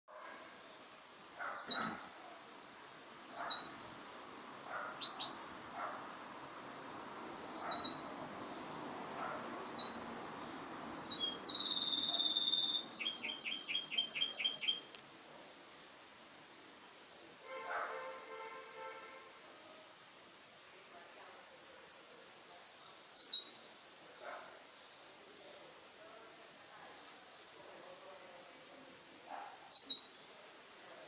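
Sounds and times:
canary chirping: 0:03.3 - 0:03.7, 0:07.5 - 0:08.0, 0:09.6 - 0:10.0, 0:10.9 - 0:14.9
canary singing whistle and trill: 0:07.6 - 0:08.0, 0:10.9 - 0:14.9, 0:29.7 - 0:30.1.

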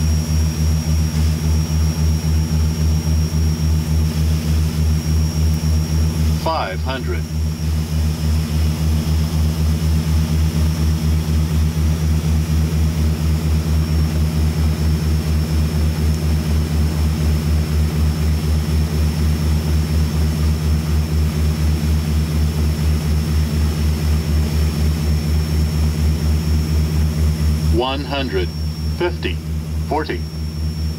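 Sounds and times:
faint high whine: 0:00.0 - 0:08.4, 0:23.8 - 0:30.9
turboprop engines droning: 0:00.0 - 0:30.9.

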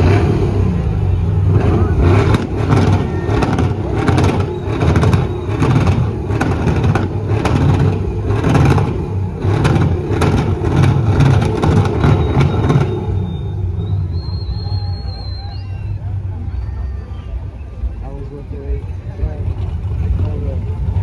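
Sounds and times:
truck engine revving hard: 0:00.0 - 0:16.4.

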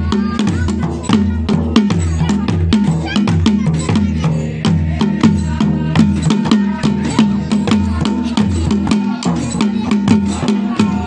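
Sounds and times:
barrel drum beaten fast: 0:00.0 - 0:11.0.

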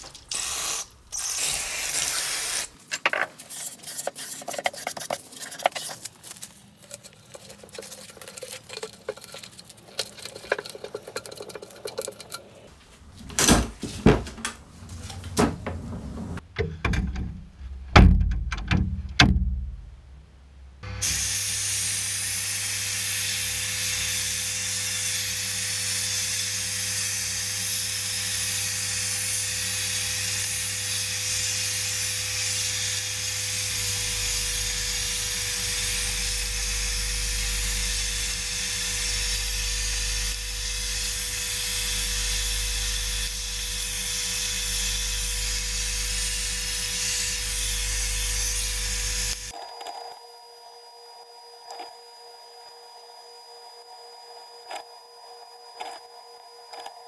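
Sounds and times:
sandblast cabinet clunks and rattles: 0:13.2 - 0:19.7.

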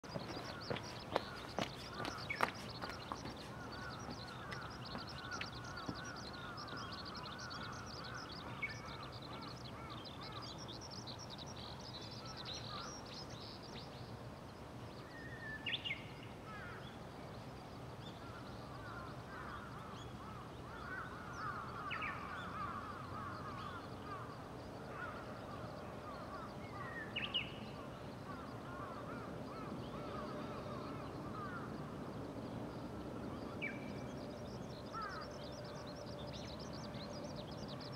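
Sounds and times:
harsh bird calls: 0:00.0 - 0:10.7
small birds chirping: 0:00.0 - 0:17.0.

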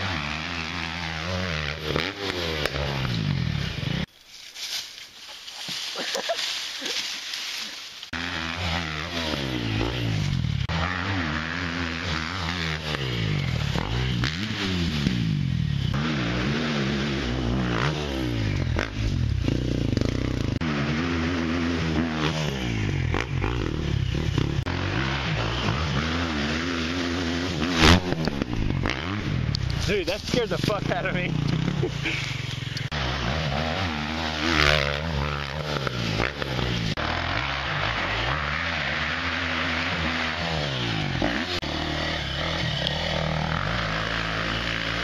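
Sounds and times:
dirt bike engine revving: 0:00.0 - 0:04.1, 0:08.0 - 0:45.0.

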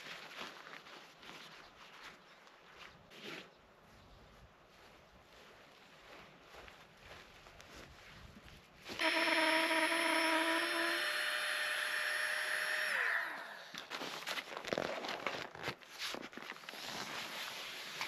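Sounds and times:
small electric motor running: 0:09.0 - 0:13.7.

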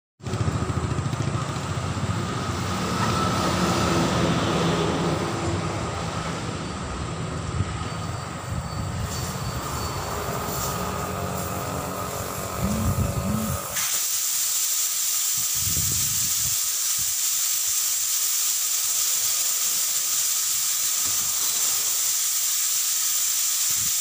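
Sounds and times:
engine droning: 0:00.2 - 0:13.8
air hissing from tyre: 0:00.3 - 0:24.0.

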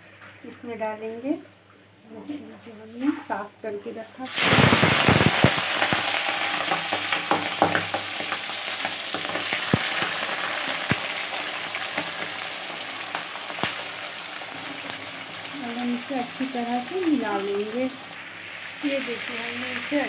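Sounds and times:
oil popping and crackling: 0:04.2 - 0:20.0
prawns sizzling in hot oil: 0:04.2 - 0:20.0.

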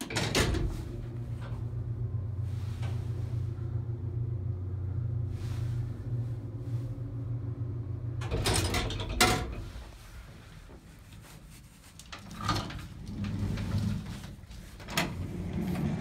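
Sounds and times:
elevator rattling clatter: 0:00.0 - 0:01.4, 0:08.2 - 0:09.8
elevator car humming: 0:00.0 - 0:09.8, 0:12.2 - 0:16.0.

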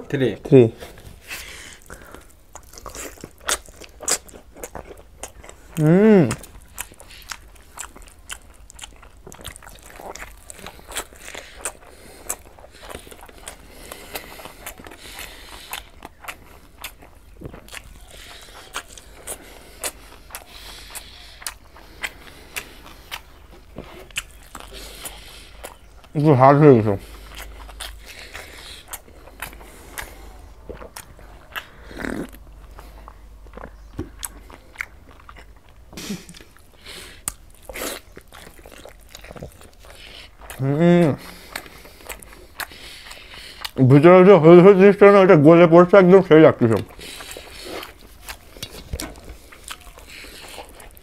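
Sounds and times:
person chewing food: 0:00.8 - 0:44.0, 0:46.6 - 0:51.0.

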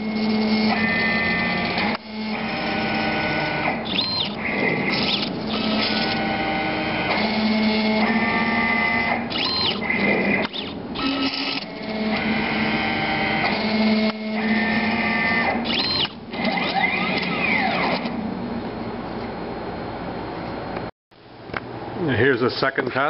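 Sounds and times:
motors whining: 0:00.0 - 0:18.3.

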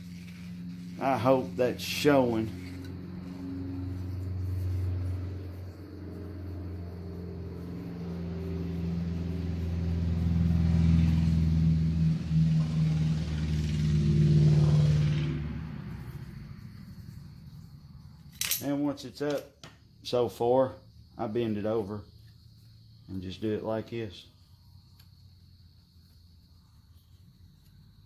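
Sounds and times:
vehicle engine passing: 0:00.0 - 0:18.3.

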